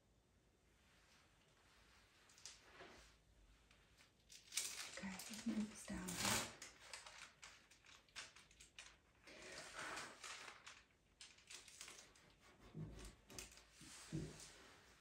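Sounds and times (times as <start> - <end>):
paper rustling: 4.3 - 15.0.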